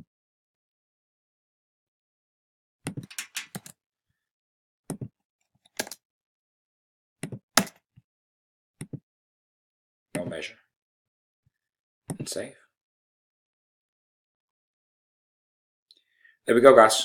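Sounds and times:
keyboard keystrokes clicking: 3.1 - 3.7.

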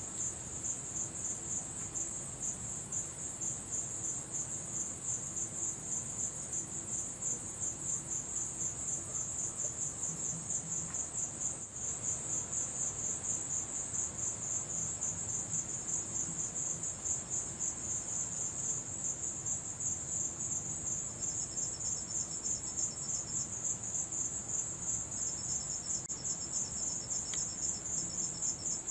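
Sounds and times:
crickets chirping: 0.0 - 28.9.

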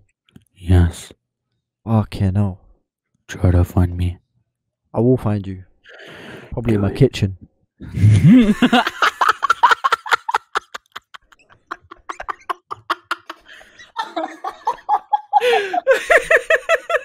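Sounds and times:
two people laughing: 7.9 - 17.0.

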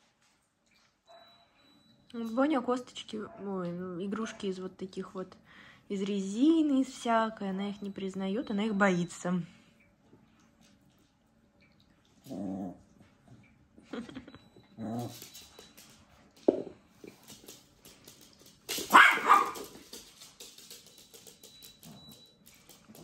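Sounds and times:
small dog yapping: 18.9 - 19.8.

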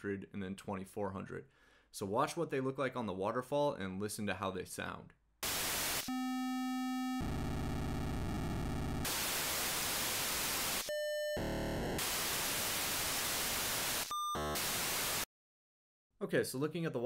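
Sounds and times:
radio static hiss: 5.4 - 6.1, 7.3 - 15.3
pager data tones and buzzing: 5.4 - 15.2.

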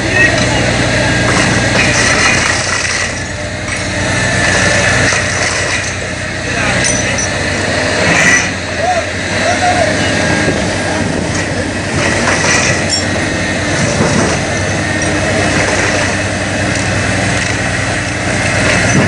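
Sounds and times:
excavator diesel engine running: 0.0 - 19.0
boat hull cracking and screeching: 1.2 - 3.9, 11.2 - 17.6.

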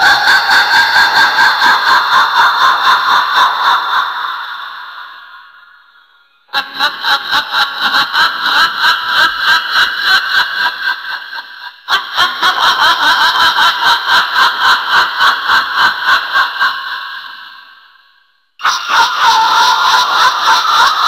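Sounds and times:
woman cackling: 18.6 - 21.0.

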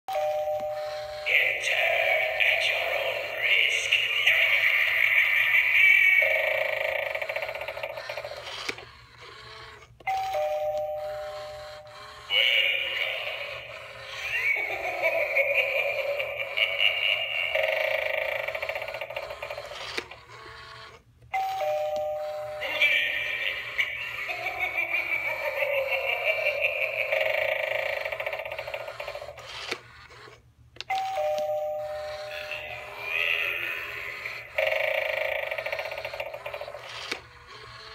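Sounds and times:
spooky doorbell voice effect: 0.1 - 7.6, 10.1 - 19.2, 21.4 - 28.5, 30.9 - 36.8
doorbell click: 30.9 - 31.9.

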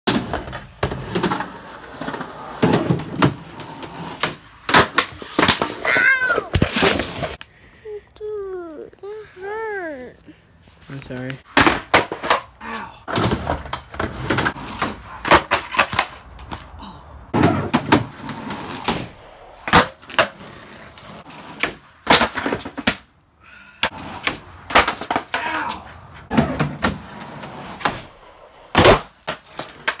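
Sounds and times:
skateboard deck slapping down: 0.1 - 7.4, 11.5 - 12.5, 13.1 - 16.7, 23.8 - 28.1
skateboard wheels rolling on concrete: 0.1 - 30.0.

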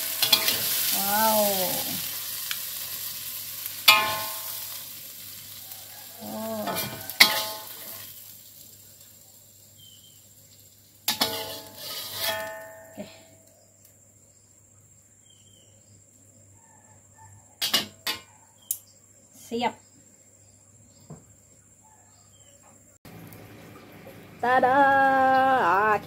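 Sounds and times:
metal spatula scraping a wok: 0.0 - 1.0, 3.8 - 4.9, 5.8 - 8.2, 11.1 - 13.0
wok ringing: 0.0 - 5.0, 6.1 - 8.2, 11.1 - 13.2
food sizzling in a pan: 0.0 - 13.9, 17.6 - 18.3.

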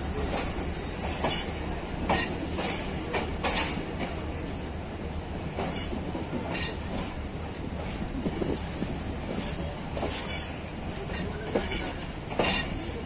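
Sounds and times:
wheels clacking over rail joints: 0.0 - 4.2, 5.4 - 7.2, 9.2 - 13.0
train wheels rumbling: 0.0 - 13.0.

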